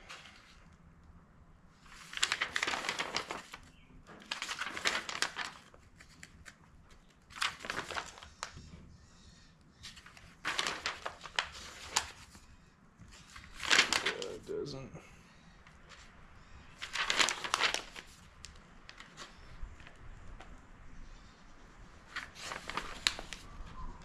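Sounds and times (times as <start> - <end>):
paper pages rustling: 0.0 - 0.7, 1.8 - 8.7, 9.8 - 14.6, 16.8 - 20.6, 22.0 - 24.0.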